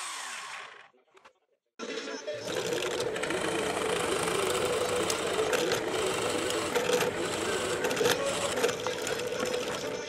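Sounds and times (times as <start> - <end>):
drill press motor hum: 2.5 - 10.0
drill bit crackling in wood: 2.6 - 10.0.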